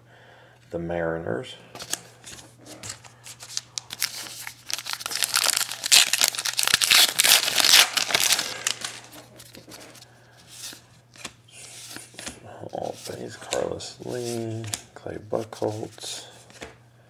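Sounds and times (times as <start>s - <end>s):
foil wrapper tearing and crinkling: 3.4s - 9.2s.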